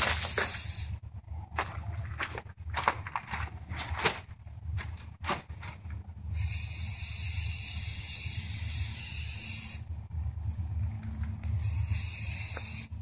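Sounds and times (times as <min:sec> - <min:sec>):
spray-paint can hissing: 0:00.0 - 0:01.0, 0:06.3 - 0:09.8, 0:11.5 - 0:13.0.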